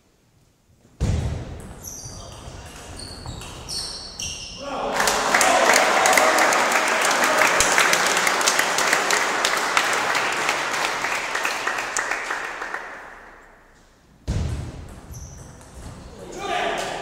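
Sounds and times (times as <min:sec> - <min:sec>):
audience applauding: 0:04.9 - 0:13.4.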